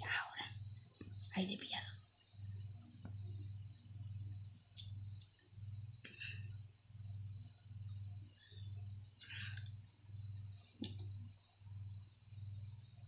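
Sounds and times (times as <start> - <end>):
high-pitched hiss: 0.0 - 13.0
pulsing low hum: 0.0 - 13.0.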